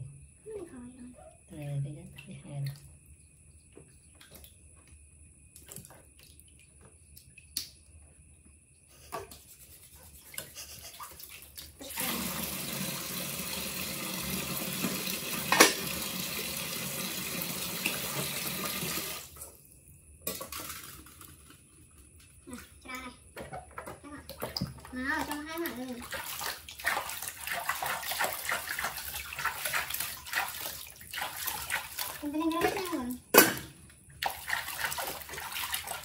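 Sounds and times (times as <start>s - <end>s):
tap water running: 10.4s - 19.6s, 20.2s - 36.0s.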